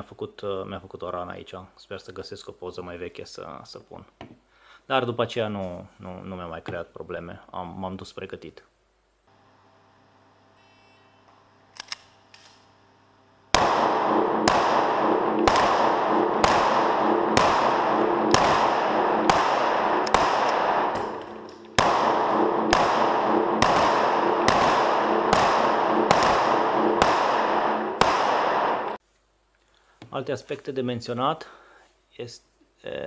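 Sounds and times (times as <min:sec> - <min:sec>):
pistol shots echoing indoors: 0:13.5 - 0:29.0.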